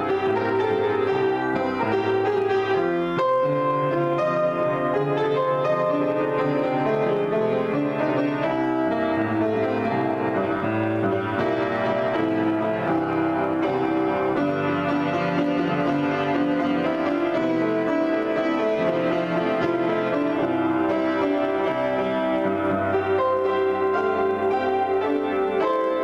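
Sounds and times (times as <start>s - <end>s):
solo piano: 0.0s - 26.0s.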